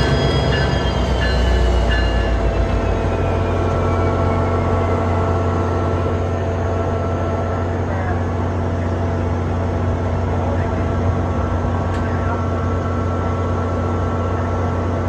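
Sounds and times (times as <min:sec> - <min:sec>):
faint high squeal: 0:00.0 - 0:05.3
diesel locomotive engine humming: 0:00.0 - 0:15.0.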